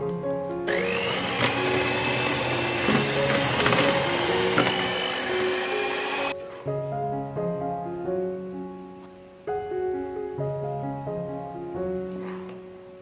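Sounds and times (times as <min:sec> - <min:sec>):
soft piano music: 0:00.0 - 0:13.0
electric hand mixer running: 0:00.7 - 0:06.4.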